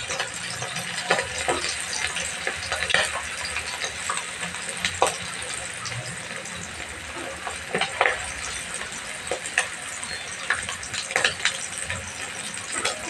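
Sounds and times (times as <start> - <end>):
chicken deep-frying in oil: 0.0 - 13.0
oil crackling and popping: 0.0 - 13.0.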